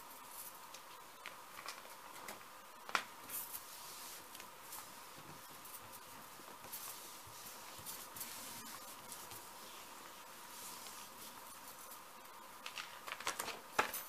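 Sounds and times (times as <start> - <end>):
paper rustling and swishing: 3.2 - 12.1.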